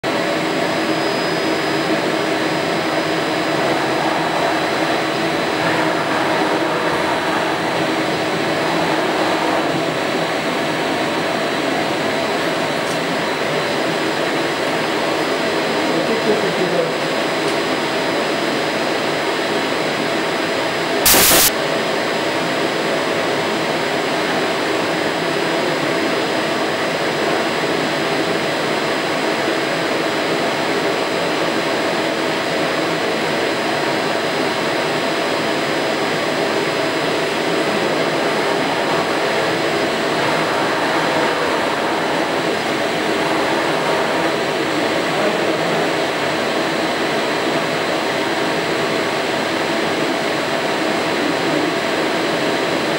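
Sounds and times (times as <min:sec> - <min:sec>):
short loud burst of noise: 0:21.1 - 0:21.5.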